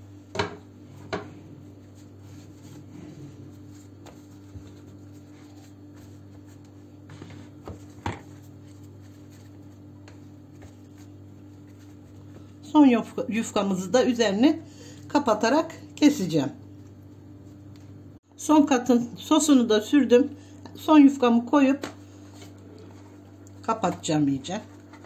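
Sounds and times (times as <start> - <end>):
hands handling pastry sheets: 1.0 - 12.6.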